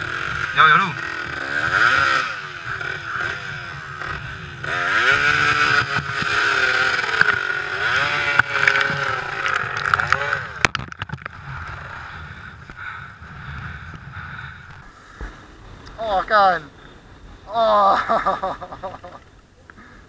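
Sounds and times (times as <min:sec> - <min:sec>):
dirt bike engine revving: 0:00.0 - 0:19.2.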